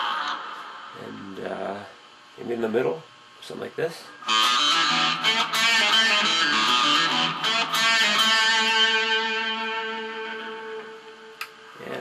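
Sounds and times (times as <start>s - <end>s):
electric guitar riff: 0.0s - 1.5s, 4.2s - 12.0s.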